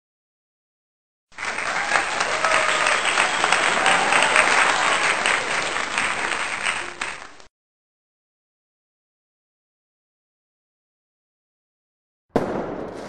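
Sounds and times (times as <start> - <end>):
crowd applauding: 1.3 - 7.5
faint voices: 1.4 - 7.5.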